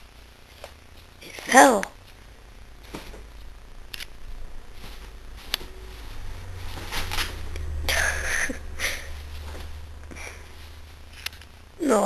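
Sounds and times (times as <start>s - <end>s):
bedding rustling: 2.1s - 3.4s, 4.3s - 11.2s.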